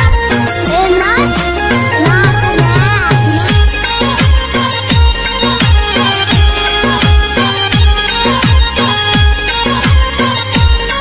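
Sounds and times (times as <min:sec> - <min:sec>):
folk-pop song: 0:00.0 - 0:03.8.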